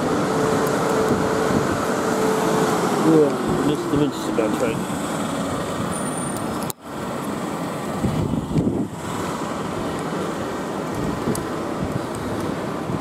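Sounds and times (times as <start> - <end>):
electric train running noise: 0.0 - 13.0.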